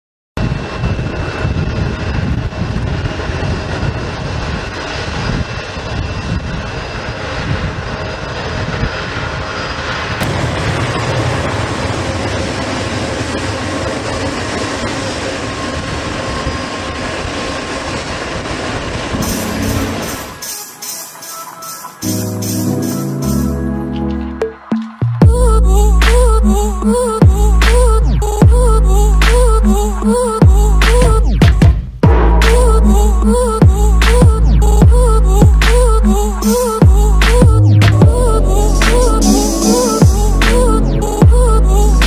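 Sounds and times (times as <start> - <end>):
jet engines rushing and whining: 0.4 - 42.0
music with tambourine: 19.2 - 23.7, 36.4 - 41.4.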